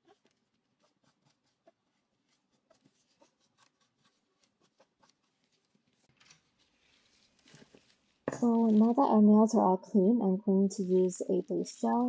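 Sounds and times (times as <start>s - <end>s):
faint rubbing strokes: 0.3s - 9.0s.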